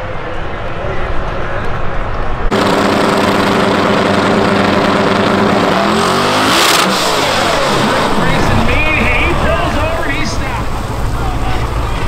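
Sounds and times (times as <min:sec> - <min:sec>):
car engine revving: 0:02.5 - 0:12.0.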